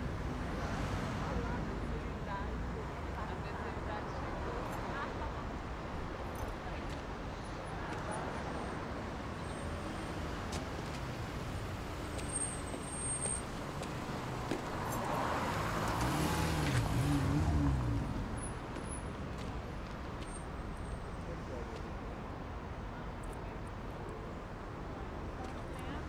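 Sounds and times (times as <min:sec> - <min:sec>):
passing cars hum: 0:07.4 - 0:21.6
car engine passing by: 0:13.7 - 0:18.4.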